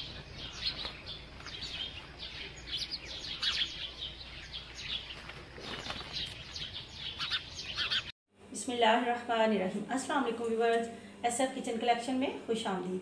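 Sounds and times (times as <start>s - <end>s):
small birds chirping: 0.0s - 8.1s.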